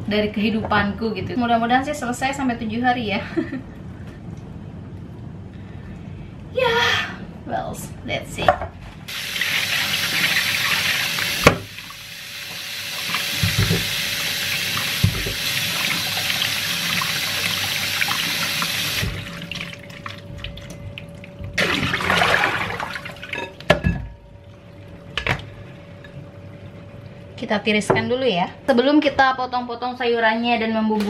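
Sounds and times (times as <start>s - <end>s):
tap running into sink: 10.0s - 11.9s, 12.5s - 14.0s, 14.8s - 16.0s.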